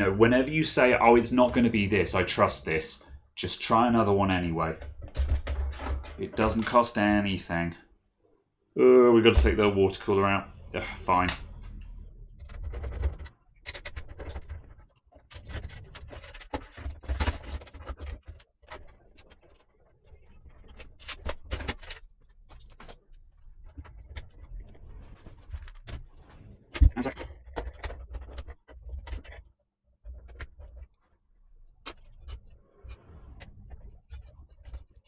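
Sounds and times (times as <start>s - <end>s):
clicks and scrapes of computer parts: 11.1s - 35.0s.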